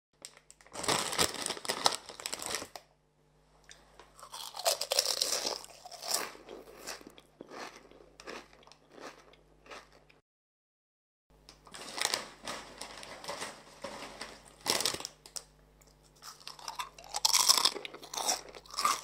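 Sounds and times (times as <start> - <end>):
chips crunching: 4.2 - 10.0, 11.7 - 19.0.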